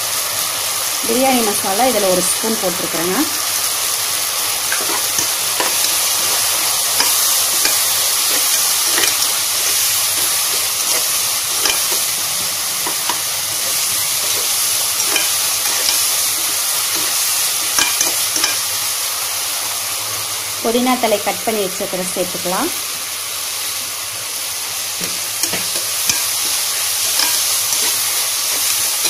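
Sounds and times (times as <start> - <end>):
masala sizzling in oil: 0.0 - 29.0
spoon scraping a pot: 4.7 - 18.7, 25.4 - 29.0.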